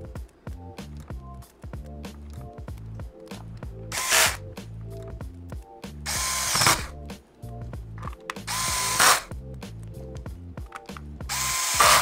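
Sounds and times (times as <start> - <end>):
electric screwdriver whine: 3.9 - 4.4, 6.1 - 6.9, 8.5 - 9.3, 11.3 - 12.0.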